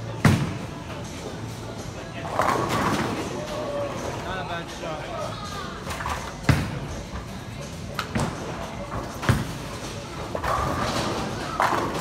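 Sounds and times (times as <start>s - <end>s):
bowling ball thudding and rolling: 8.1s - 12.0s.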